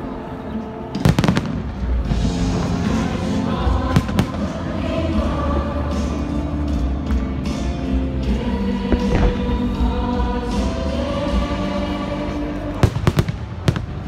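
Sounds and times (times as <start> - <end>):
music playing: 0.0 - 14.0
fireworks bursting with bangs: 1.0 - 2.8, 8.9 - 10.8, 12.8 - 14.0.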